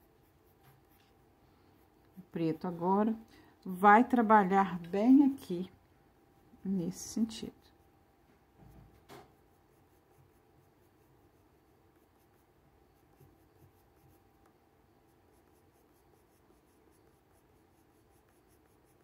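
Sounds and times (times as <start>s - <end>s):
pencil scratching on paper: 0.0s - 3.0s, 9.1s - 19.0s.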